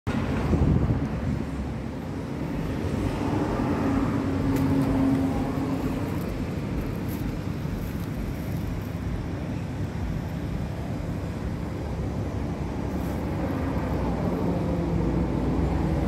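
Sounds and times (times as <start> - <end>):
road traffic rumble: 0.0 - 16.0
motor vehicle passing: 0.3 - 9.2.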